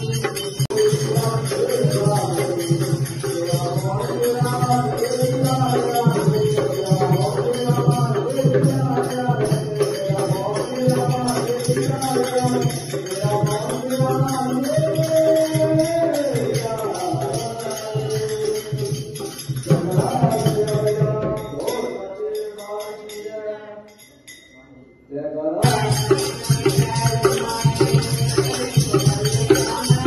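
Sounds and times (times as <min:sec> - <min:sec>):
jingling tambourine: 0:00.0 - 0:24.8, 0:25.6 - 0:30.0
hand drum beat: 0:25.6 - 0:30.0.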